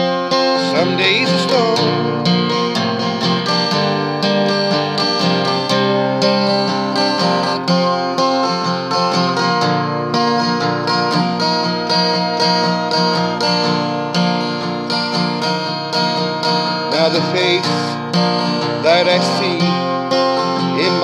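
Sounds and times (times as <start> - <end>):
acoustic guitar strumming: 0.0 - 21.0.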